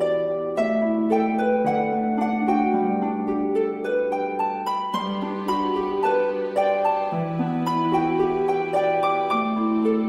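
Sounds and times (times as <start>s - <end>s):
plucked string music: 0.0s - 10.0s.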